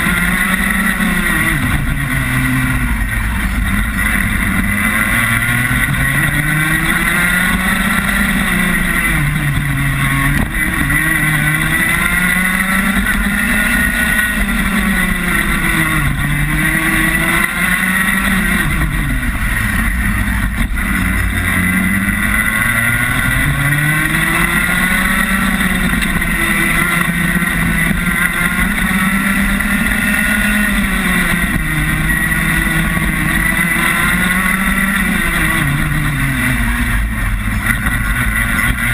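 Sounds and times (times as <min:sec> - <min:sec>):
kart engine at speed: 0:00.0 - 0:38.9.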